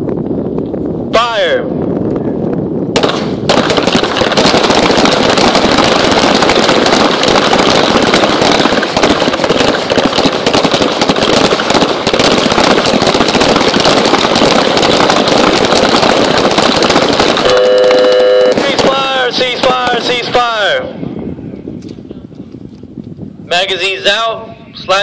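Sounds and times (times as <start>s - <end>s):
pistols firing rapidly: 3.0s - 20.3s.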